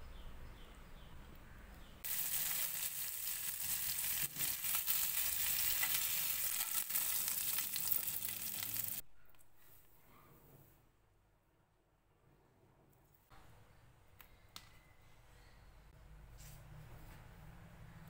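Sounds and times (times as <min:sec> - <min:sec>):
fish sizzling in hot oil: 0:02.0 - 0:09.0.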